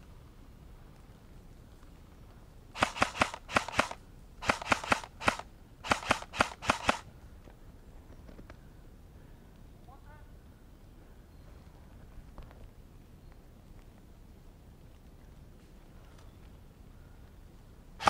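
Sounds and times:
airsoft gun firing: 0:02.8 - 0:07.0.

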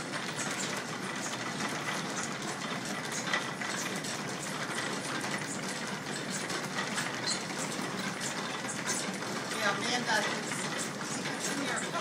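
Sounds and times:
belt-driven line shafting running: 0:00.0 - 0:12.0.

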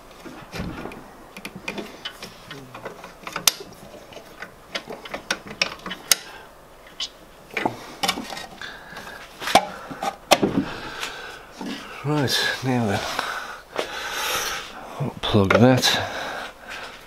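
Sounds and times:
metal parts clicking and clunking: 0:00.5 - 0:06.3.

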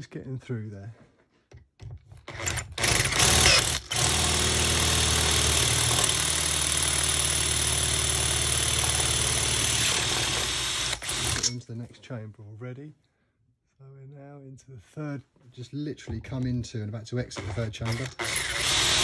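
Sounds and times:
electric drill boring into metal: 0:02.3 - 0:11.6, 0:17.4 - 0:19.0.

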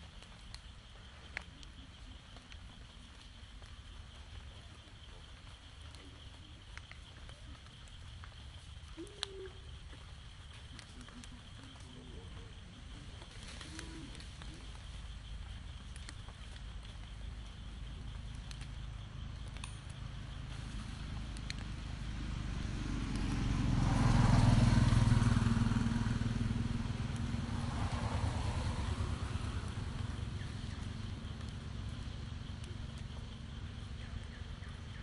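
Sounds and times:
vehicle engine passing by: 0:20.7 - 0:35.0.

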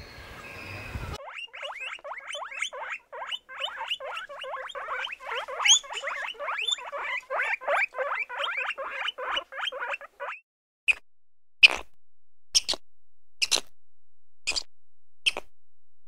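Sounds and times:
guinea pig squeaking: 0:01.2 - 0:11.0, 0:11.6 - 0:11.9, 0:12.6 - 0:12.8, 0:13.4 - 0:13.7, 0:14.5 - 0:14.7, 0:15.3 - 0:15.5.

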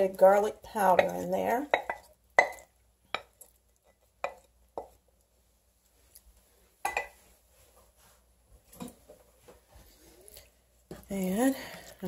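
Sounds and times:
wooden spoon knocking a skillet: 0:00.3 - 0:05.0, 0:06.8 - 0:07.2.

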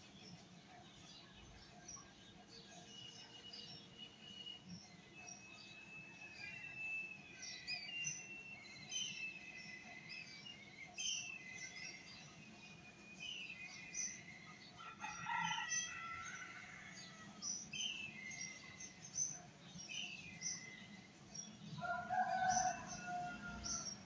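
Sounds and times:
small birds chirping: 0:00.0 - 0:24.0
rooster crowing: 0:14.8 - 0:17.4, 0:21.8 - 0:24.0.

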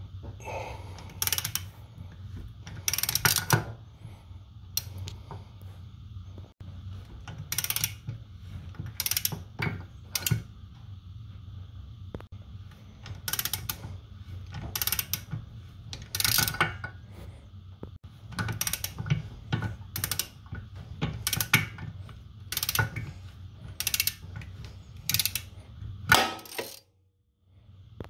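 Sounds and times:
hand ratchet clicking: 0:01.0 - 0:01.8, 0:02.7 - 0:03.7, 0:07.4 - 0:08.1, 0:08.9 - 0:10.5, 0:13.0 - 0:16.9, 0:18.3 - 0:23.1, 0:23.7 - 0:25.5, 0:26.1 - 0:26.8.

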